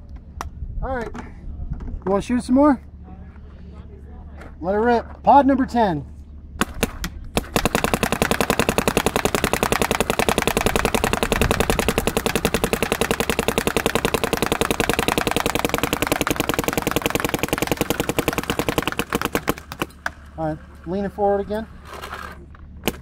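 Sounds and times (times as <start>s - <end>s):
paintball marker rapid firing: 6.6s - 20.2s.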